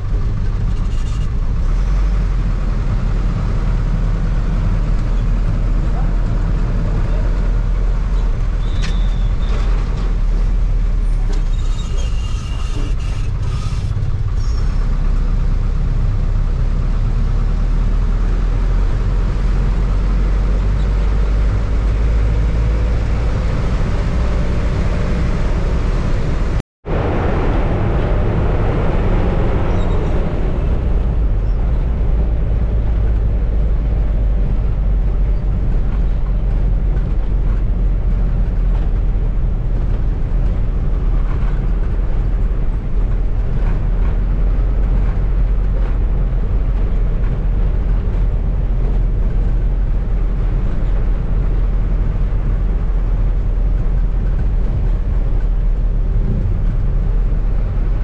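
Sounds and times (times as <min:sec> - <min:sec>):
bus engine and road drone: 0:00.0 - 0:58.0.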